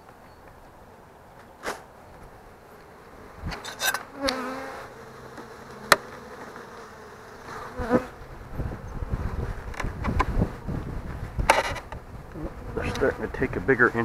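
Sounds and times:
bees buzzing: 2.2 - 14.0
wooden hive boxes knocking: 5.3 - 6.2.

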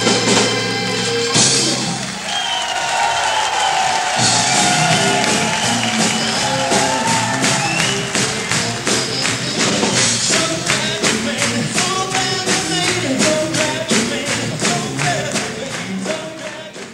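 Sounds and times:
horns playing blues: 0.0 - 16.9
crisp percussion beat: 4.2 - 16.9.

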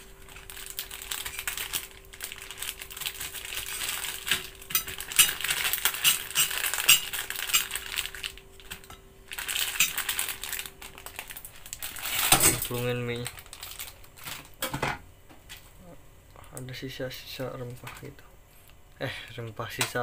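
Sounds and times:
plastic packet crinkling: 0.0 - 14.6.

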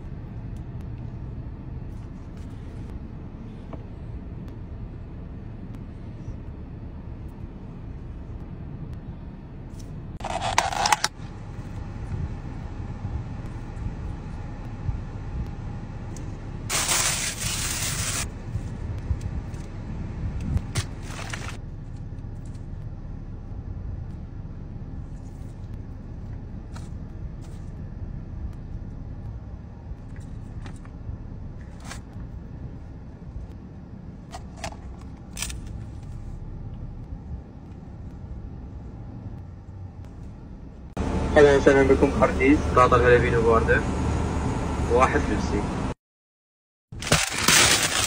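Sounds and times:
low car cabin rumble: 0.0 - 45.8
plastic spoon scraping containers: 10.2 - 11.1.

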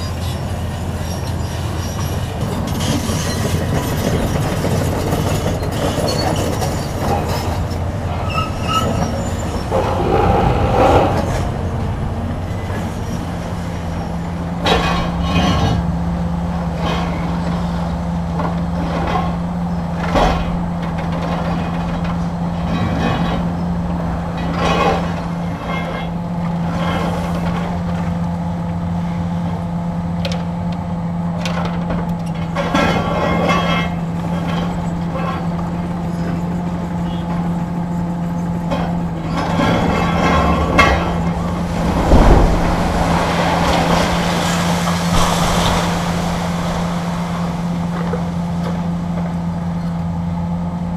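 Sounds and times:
excavator diesel engines running: 0.0 - 50.9
concrete cracking and crashing: 39.6 - 48.6.

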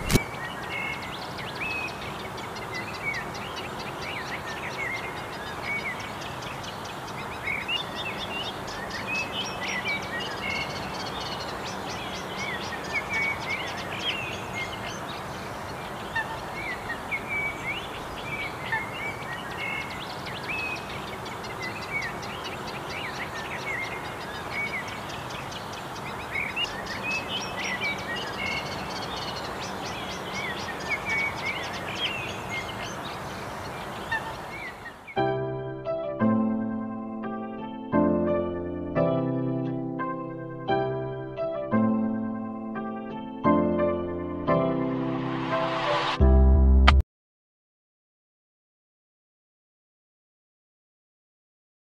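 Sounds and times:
birds chirping: 0.0 - 35.4.

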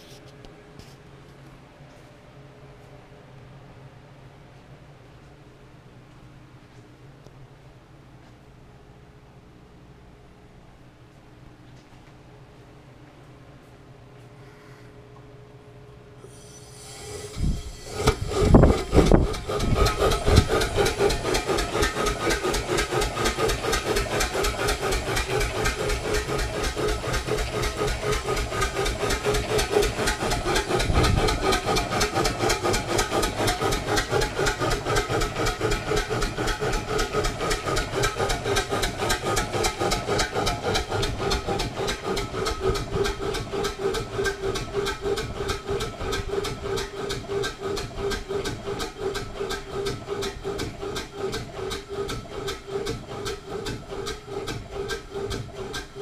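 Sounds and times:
steam engine chuffing: 16.2 - 56.0.

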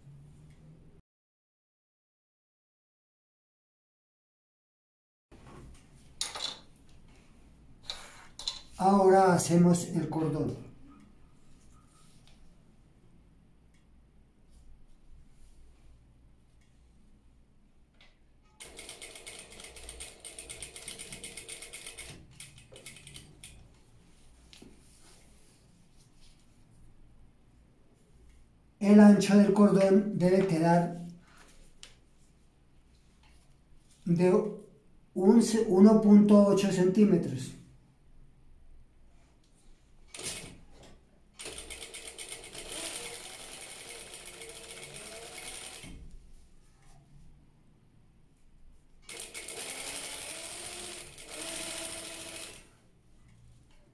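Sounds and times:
sewing machine stitching: 18.5 - 23.6, 40.1 - 46.0, 49.1 - 52.7
fabric rustling: 23.8 - 26.9.

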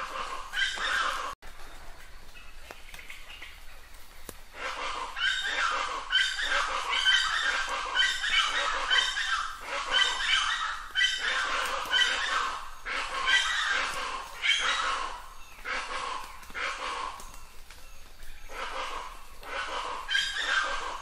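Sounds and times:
bird calling harshly: 0.0 - 1.4, 4.6 - 17.4, 18.5 - 21.0.

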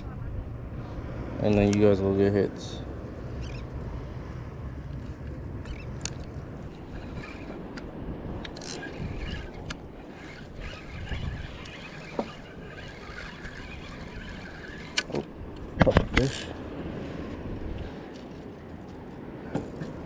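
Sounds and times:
low wind rumble: 0.0 - 20.0
fishing rod clicks and taps: 4.9 - 16.4.

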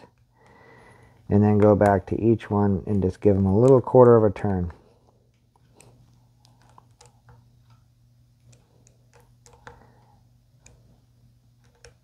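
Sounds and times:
faint metal clicks and ticks: 2.8 - 10.9.

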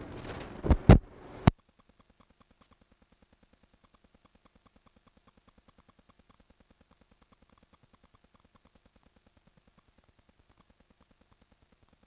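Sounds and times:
stopwatch ticking: 1.6 - 12.0.

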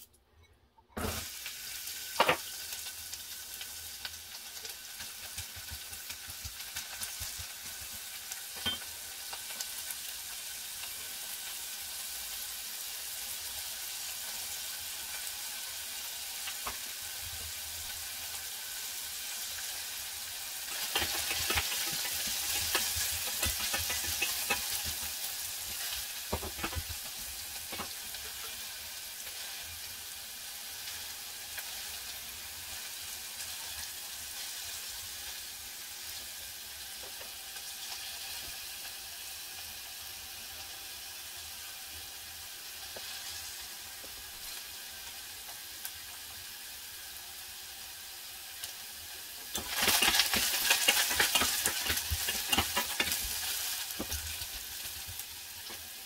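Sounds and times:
carrots sizzling in a pan: 1.0 - 56.0
spatula scraping a pan: 20.7 - 28.7, 49.5 - 54.6.

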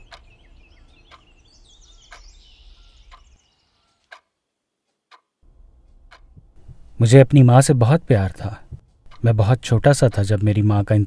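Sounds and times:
clock ticking: 0.0 - 1.3, 2.1 - 2.3, 3.1 - 3.3, 4.1 - 4.3, 5.1 - 11.0
birds chirping: 0.0 - 4.2.

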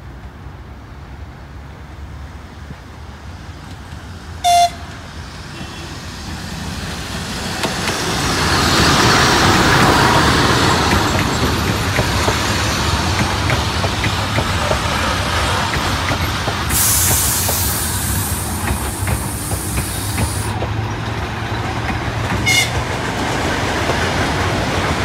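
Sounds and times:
train wheels rumbling on rails: 0.0 - 25.0
train horn toot: 4.4 - 4.9, 22.4 - 22.8
clicks from rail joints: 7.5 - 8.1, 8.8 - 24.9.

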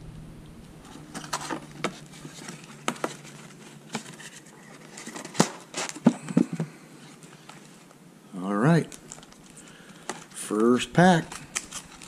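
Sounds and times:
cardboard taps and scrapes: 1.1 - 6.7.

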